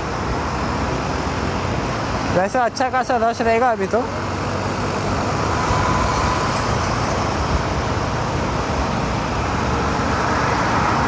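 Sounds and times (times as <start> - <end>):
motorcycle riding through traffic: 0.0 - 11.0.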